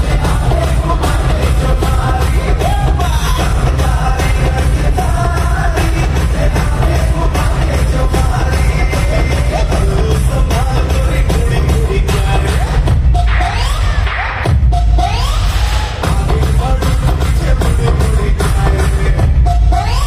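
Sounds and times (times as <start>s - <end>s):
loud concert music with singing: 0.0s - 20.0s.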